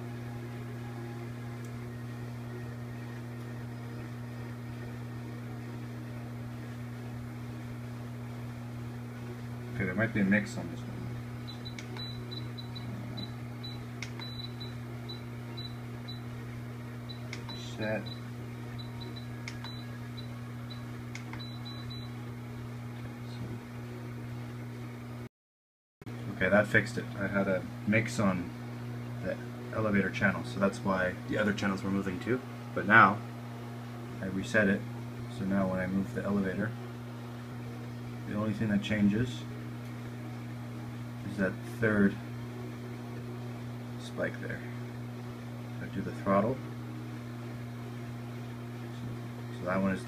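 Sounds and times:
higher hum tone: 0:00.0 - 0:25.2
low electrical hum: 0:00.0 - 0:25.3, 0:26.1 - 0:50.0.

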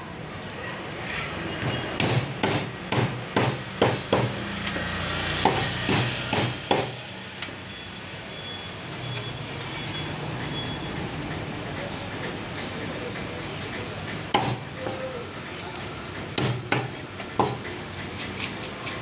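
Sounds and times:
knife scraping fish scales: 0:18.1 - 0:19.0.

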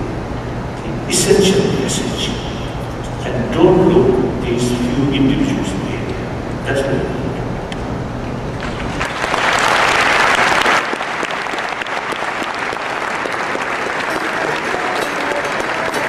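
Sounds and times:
large audience applauding: 0:08.6 - 0:16.0.

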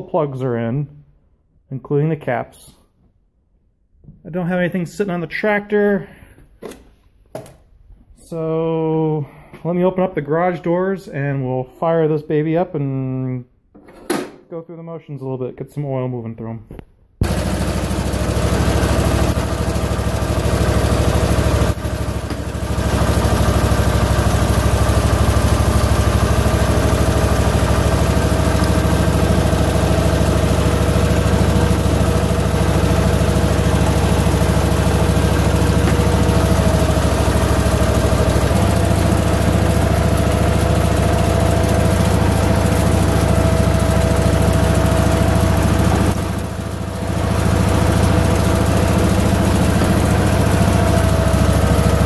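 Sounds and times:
garden tractor engine running: 0:17.2 - 0:52.0.

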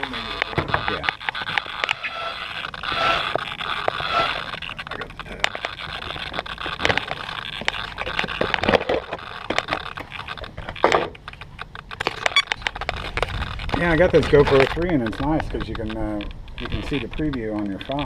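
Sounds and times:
camera handling clicks and scrapes: 0:06.4 - 0:18.0.

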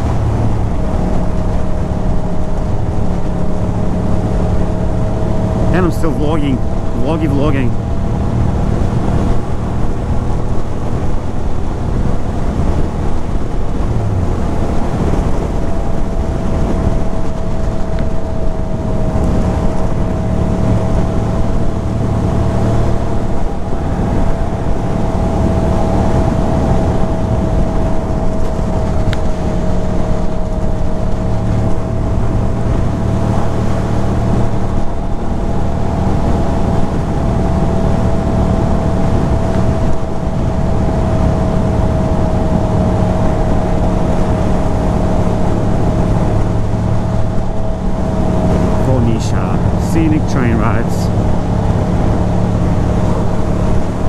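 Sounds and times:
steady high note: 0:48.8 - 0:51.1.

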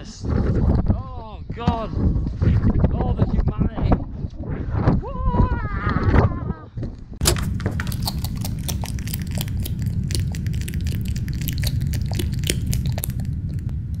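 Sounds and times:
crackling and crunching: 0:07.2 - 0:14.0
low rumble: 0:07.4 - 0:14.0.

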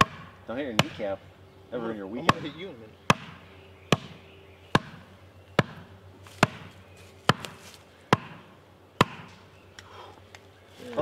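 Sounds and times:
hammer striking wooden stake: 0:00.0 - 0:01.1, 0:02.2 - 0:09.4.

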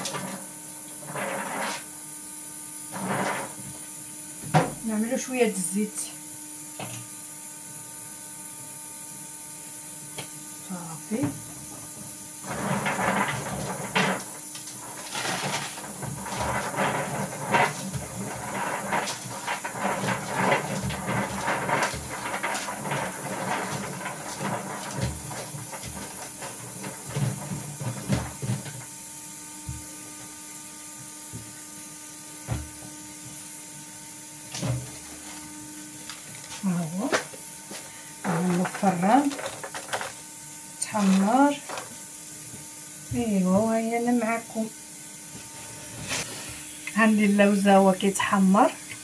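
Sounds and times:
nuts rattling on baking paper: 0:12.4 - 0:28.9, 0:34.6 - 0:42.1.

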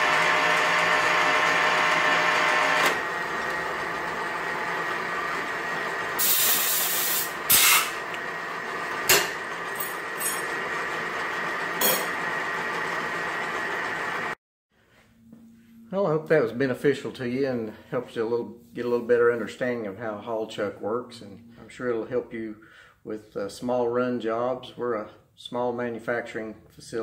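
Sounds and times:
lathe running with high whine: 0:00.0 - 0:14.4
short hissing burst: 0:06.2 - 0:08.0.

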